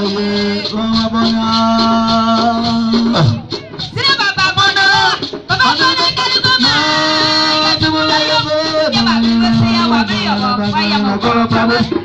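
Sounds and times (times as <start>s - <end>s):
group singing a hymn: 0.0s - 3.4s, 4.1s - 12.0s.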